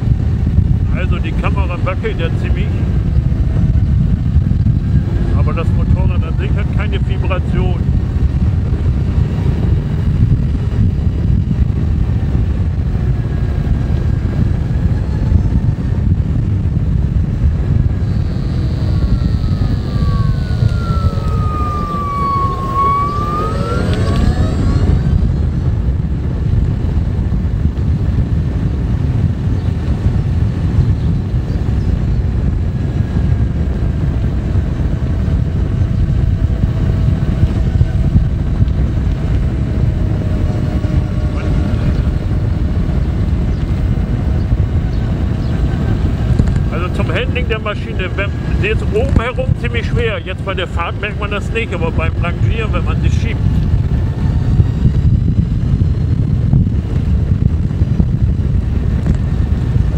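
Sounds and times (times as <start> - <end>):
wind and road rumble: 0.0 - 59.9
electric motor whine: 17.5 - 25.8, 36.2 - 55.5.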